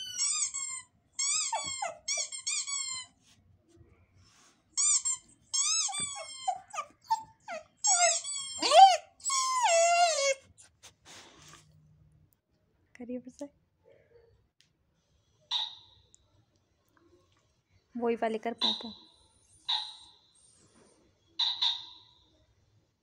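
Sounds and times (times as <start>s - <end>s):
dog whimpering: 0.0s - 3.1s, 5.6s - 10.7s.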